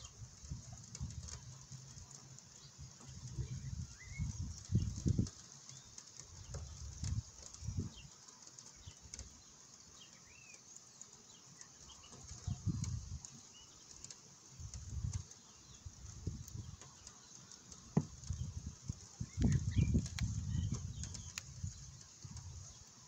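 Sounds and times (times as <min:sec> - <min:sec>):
wind buffeting microphone: 0:00.0 - 0:05.4, 0:06.3 - 0:08.1, 0:12.2 - 0:13.2, 0:14.6 - 0:16.8, 0:18.0 - 0:22.8
birds chirping: 0:00.0 - 0:23.0
rain hiss: 0:00.0 - 0:23.0.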